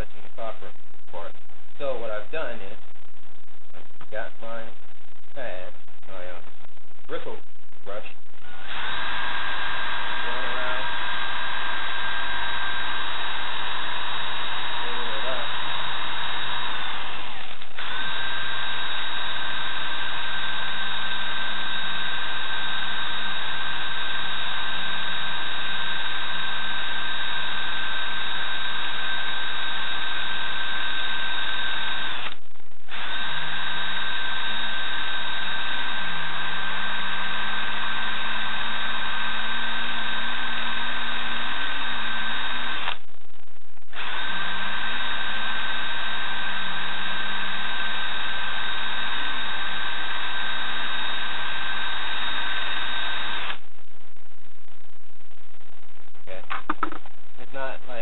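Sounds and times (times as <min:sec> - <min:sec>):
cordless drill whine: 0:07.9 - 0:43.0, 0:43.9 - 0:53.7.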